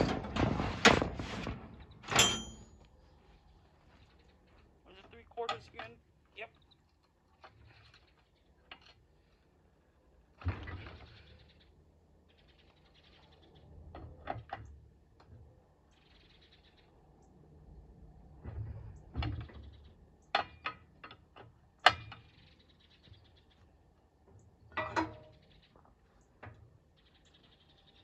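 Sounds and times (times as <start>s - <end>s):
metal knocks and clanks: 0.0s - 2.8s, 24.7s - 25.5s.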